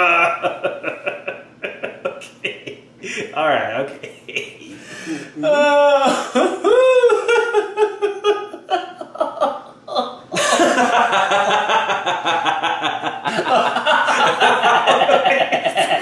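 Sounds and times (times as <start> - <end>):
man laughing hard: 0.0 - 3.3, 4.0 - 16.0
man speaking: 2.2 - 5.6.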